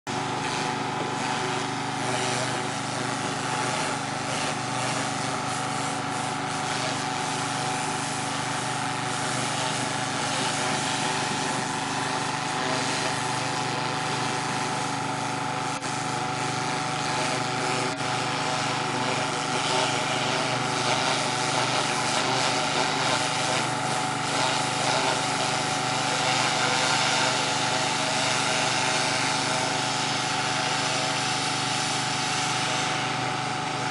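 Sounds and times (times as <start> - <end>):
pressure washer engine running: 0.0 - 33.9
water jet hissing on stone: 0.4 - 16.0, 16.7 - 33.0.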